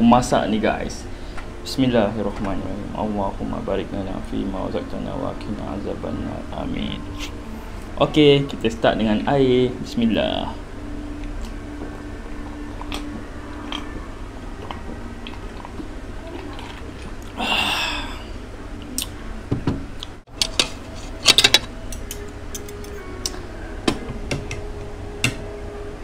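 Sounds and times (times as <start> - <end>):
person drinking: 14.6 - 18.4.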